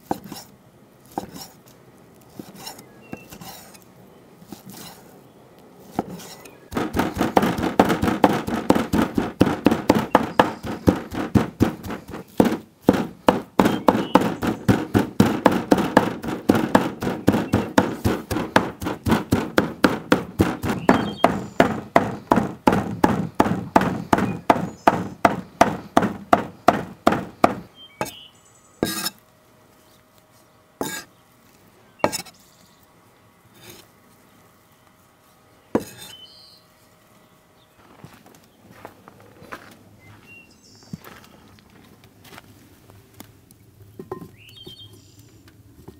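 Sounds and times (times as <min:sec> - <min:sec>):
knife chopping on cutting board: 0:05.9 - 0:28.2, 0:30.8 - 0:31.0, 0:32.0 - 0:32.3, 0:35.8 - 0:36.1.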